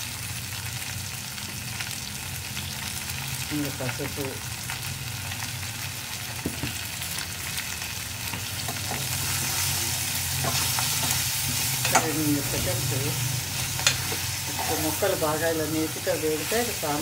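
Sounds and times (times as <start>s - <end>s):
vegetables sizzling in a pot: 0.0s - 17.0s.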